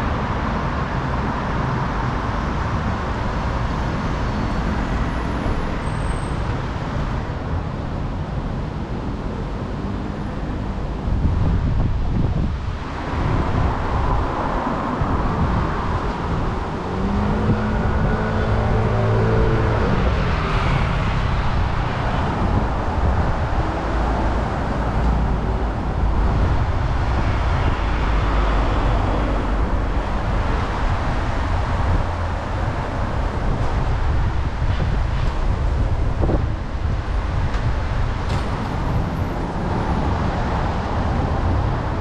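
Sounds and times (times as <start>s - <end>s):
street traffic noise: 0.0s - 42.0s
wind rumbling on microphone: 0.0s - 42.0s
passing vehicle engine hum: 9.4s - 42.0s.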